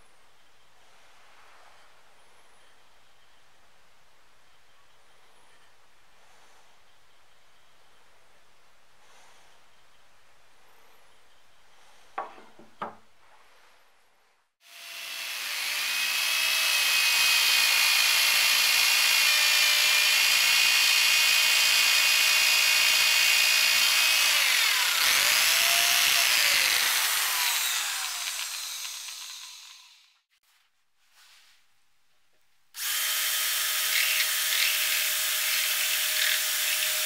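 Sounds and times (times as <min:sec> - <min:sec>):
electric drill boring into wood: 0:14.6 - 0:30.2, 0:32.8 - 0:37.0.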